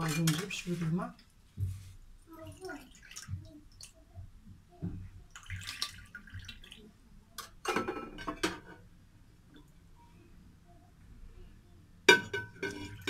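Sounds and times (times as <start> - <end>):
water pouring and splashing: 1.8 - 4.0, 5.2 - 6.9
dishes knocking and clinking: 7.4 - 8.8, 12.1 - 13.0.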